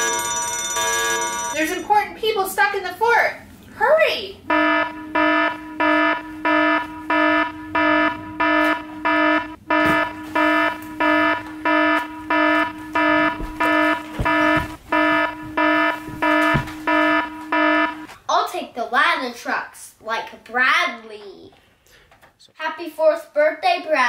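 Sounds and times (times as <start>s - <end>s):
fire alarm beeping: 0.0s - 1.9s, 4.4s - 18.1s.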